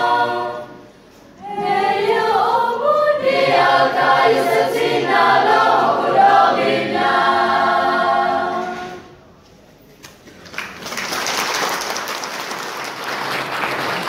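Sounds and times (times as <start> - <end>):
group of voices singing: 0.0 - 9.2
applause: 10.0 - 14.0.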